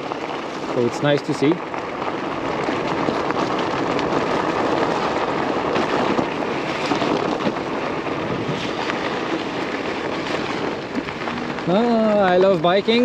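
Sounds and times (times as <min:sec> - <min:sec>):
bike tires crunching on gravel: 0:00.0 - 0:13.0
wind buffeting microphone: 0:00.0 - 0:13.0.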